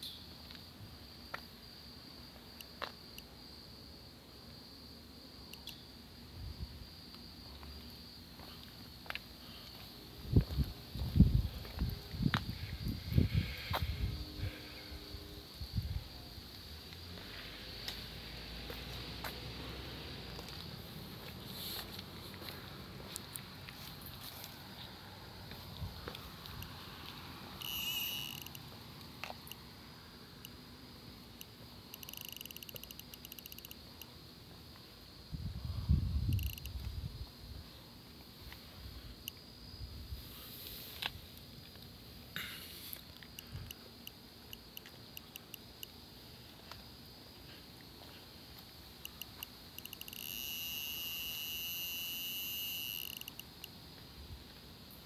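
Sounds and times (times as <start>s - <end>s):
continuous high tone: 5.0s - 19.0s, 19.6s - 39.4s, 42.4s - 55.0s
detector alarm high beeps: 27.6s - 28.6s, 49.1s - 53.5s
high-pitched electronic beeps: 27.6s - 28.6s.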